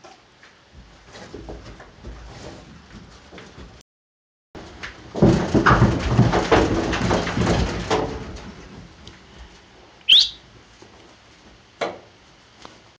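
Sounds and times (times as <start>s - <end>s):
hooves clattering on trailer floor: 0.0s - 3.8s, 4.6s - 12.9s
sharp rising whistle: 10.1s - 10.4s.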